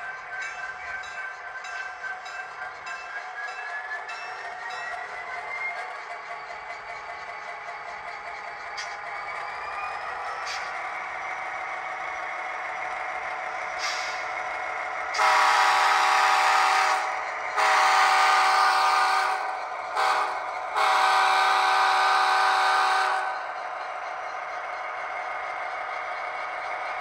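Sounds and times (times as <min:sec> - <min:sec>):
locomotive horn: 0:15.1 - 0:23.4.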